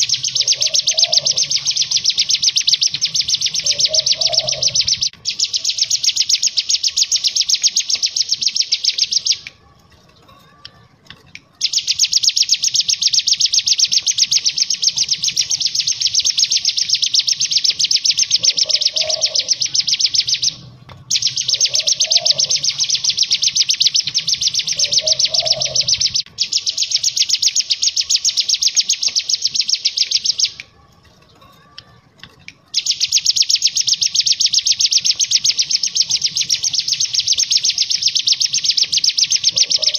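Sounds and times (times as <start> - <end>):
bird buzzing trills: 0.0 - 9.4, 11.7 - 30.5.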